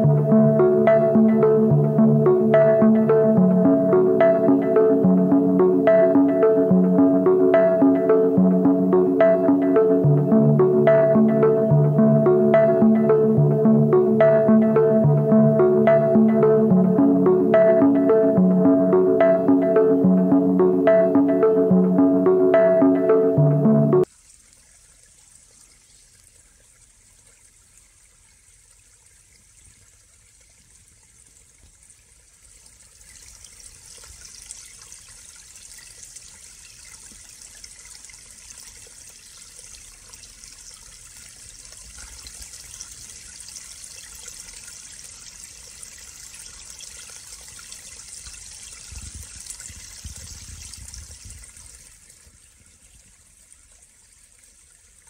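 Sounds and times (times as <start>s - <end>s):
forest stream trickling: 24.0s - 55.0s.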